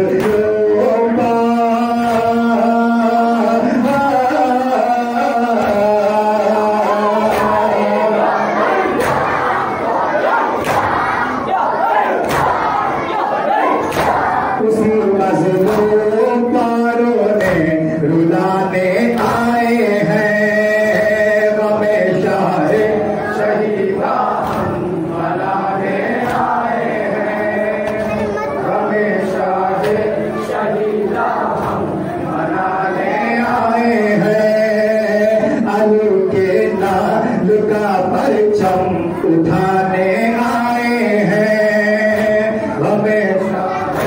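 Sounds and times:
lead voice on a microphone: 0.0s - 44.0s
men chanting a lament: 0.0s - 44.0s
hands slapping chests: 8.9s - 9.4s, 10.6s - 11.1s, 12.2s - 12.8s, 13.8s - 14.3s, 24.4s - 24.8s.

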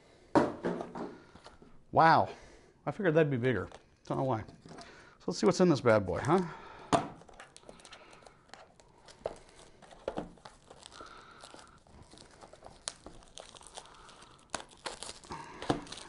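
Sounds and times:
packaging crinkling and rustling: 7.2s - 16.0s.

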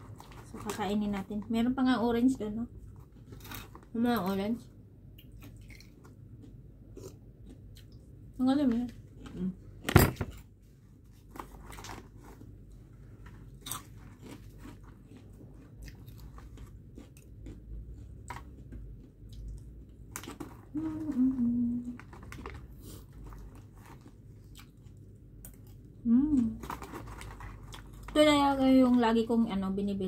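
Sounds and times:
crunchy snacks being chewed: 5.2s - 8.0s, 11.1s - 21.2s, 21.9s - 28.2s.

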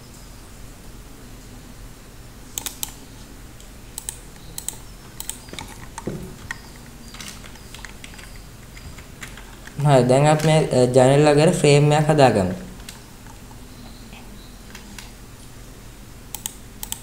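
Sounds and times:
faint steady hum: 0.0s - 17.0s
computer keyboard keys clicking: 2.6s - 3.0s, 4.0s - 10.8s, 16.3s - 17.0s.

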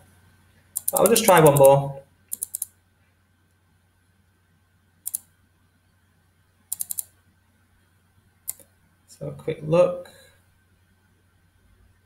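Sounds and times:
computer mouse clicking: 0.8s - 2.8s, 5.0s - 5.3s, 6.7s - 7.1s, 8.5s - 8.7s.

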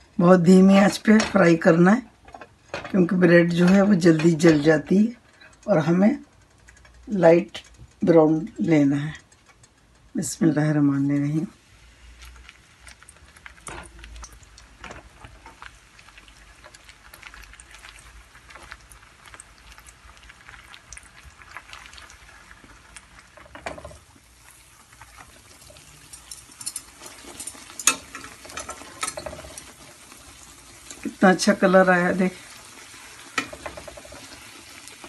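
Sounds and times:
bread sizzling in a pan: 10.6s - 35.0s.

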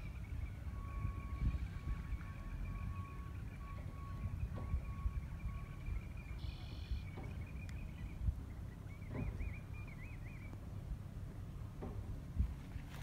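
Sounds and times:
wind on microphone: 0.0s - 9.6s, 11.8s - 13.0s.

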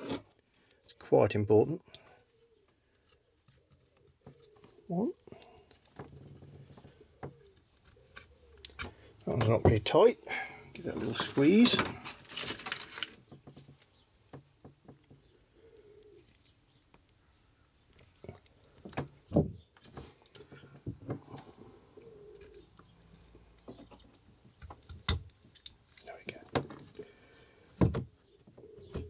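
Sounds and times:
pigeon cooing: 6.4s - 8.8s, 15.5s - 16.3s, 21.2s - 23.3s, 28.5s - 29.0s.

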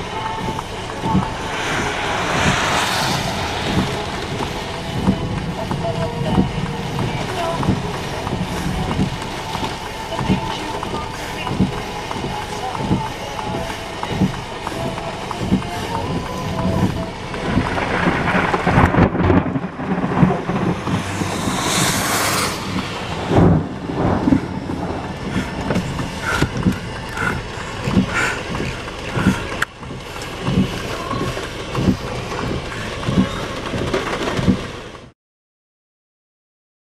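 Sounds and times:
wind buffeting microphone: 0.1s - 34.7s
low thumps: 0.7s - 11.8s, 17.5s - 33.3s.

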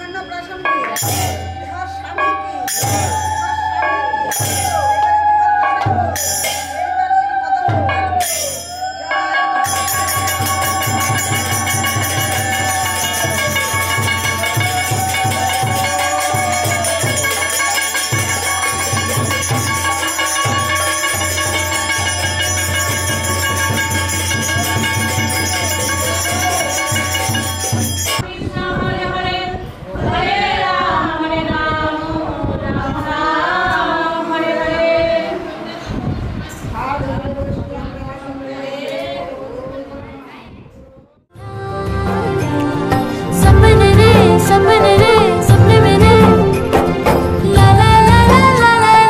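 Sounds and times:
hand cymbals clashing: 0.0s - 7.0s, 7.9s - 28.2s
metal plate beaten with stick: 0.8s - 7.0s, 7.7s - 28.2s.

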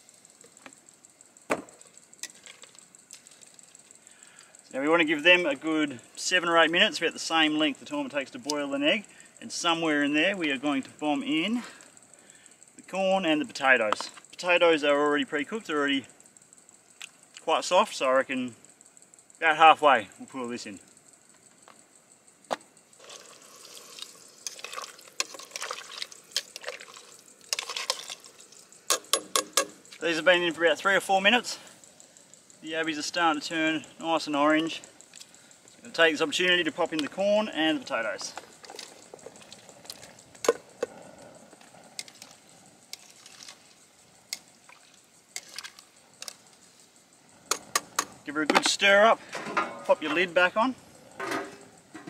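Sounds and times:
boiling water bubbling and sloshing: 23.0s - 28.9s, 38.4s - 46.7s.

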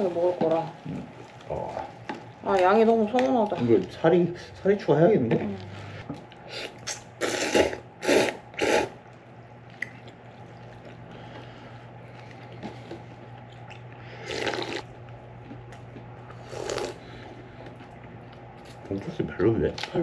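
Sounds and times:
slurping noodles: 6.5s - 9.0s, 14.1s - 14.8s, 16.3s - 17.4s
slurping sips of broth: 6.5s - 9.0s, 14.1s - 14.8s.

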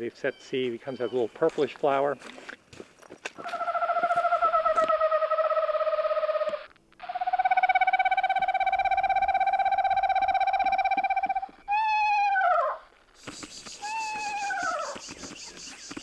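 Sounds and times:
electronic bird call trill: 7.0s - 12.2s, 13.2s - 16.0s.

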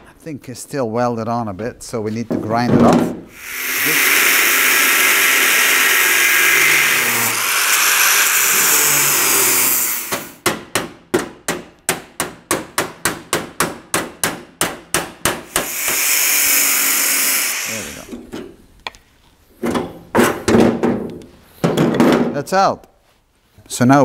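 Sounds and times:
angle grinder grinding metal: 3.4s - 10.4s, 15.6s - 18.1s.

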